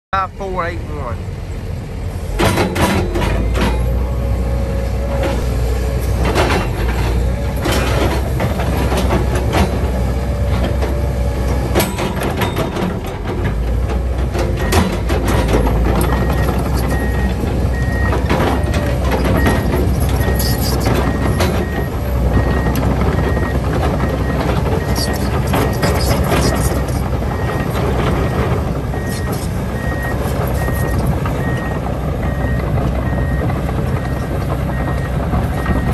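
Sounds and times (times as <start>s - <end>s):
diesel engine rumbling: 0.1s - 35.9s
steel tracks clanking: 2.2s - 4.2s, 5.0s - 35.9s
travel alarm beeping: 16.0s - 18.8s, 19.4s - 25.8s, 29.0s - 35.9s.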